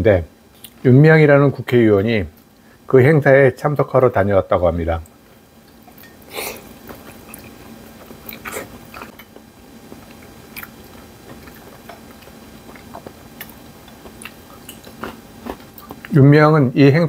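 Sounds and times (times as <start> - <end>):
man chewing meat: 5.3 - 16.2.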